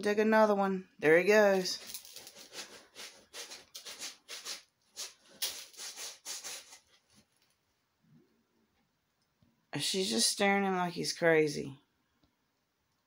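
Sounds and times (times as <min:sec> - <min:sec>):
cat scratching in litter: 0:01.7 - 0:07.4.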